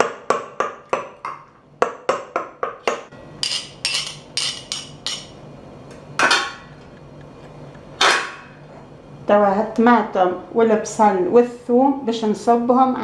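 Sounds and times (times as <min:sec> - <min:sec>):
pestle clattering down: 0:00.0 - 0:05.4
spoon tapping metal pestle: 0:02.9 - 0:05.4.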